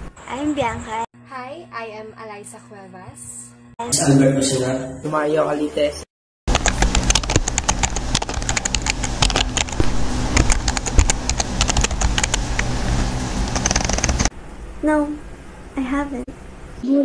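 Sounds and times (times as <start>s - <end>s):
keyboard typing clicks: 6.5s - 9.8s, 10.4s - 12.4s, 13.6s - 14.3s.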